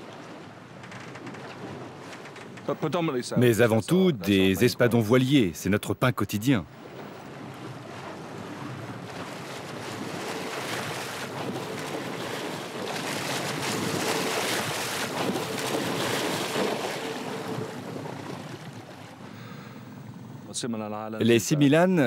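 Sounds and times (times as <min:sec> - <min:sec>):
water splashing against boat hull: 0:00.0 - 0:05.4, 0:06.7 - 0:19.5
fish thrashing at the surface: 0:07.7 - 0:19.1.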